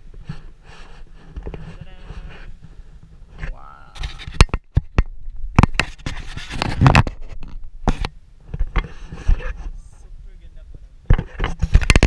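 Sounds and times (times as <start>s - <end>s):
camera handling knocks and rustles: 1.3s - 9.6s, 11.1s - 12.0s.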